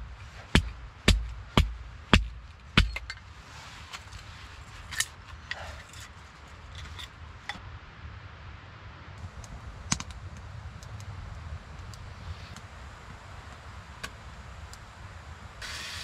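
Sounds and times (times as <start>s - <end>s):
hatchet chopping wood: 0.4s - 3.2s.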